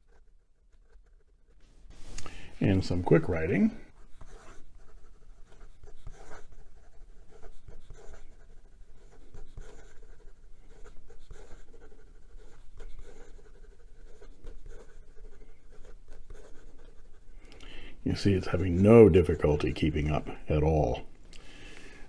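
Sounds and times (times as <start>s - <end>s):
pen nib scratching on paper: 0.0s - 1.6s, 3.9s - 17.5s.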